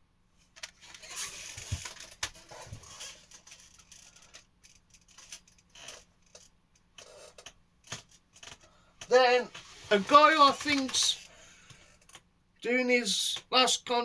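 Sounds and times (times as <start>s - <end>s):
cd cases rustling: 9.4s - 11.3s.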